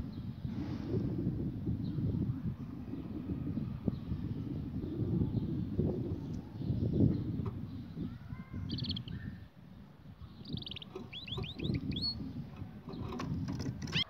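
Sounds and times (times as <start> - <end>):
small songbird chirping: 3.8 - 14.0.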